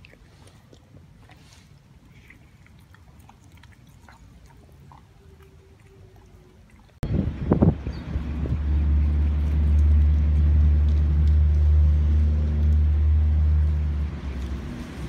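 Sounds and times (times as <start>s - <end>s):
vehicle engine running: 7.2s - 15.0s.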